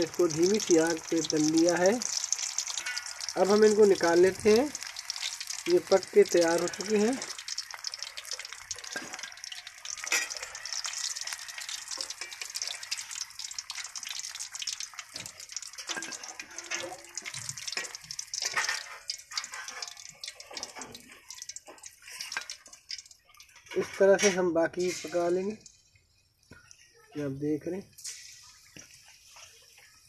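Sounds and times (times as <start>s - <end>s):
hot oil sizzling and crackling: 0.0s - 30.0s.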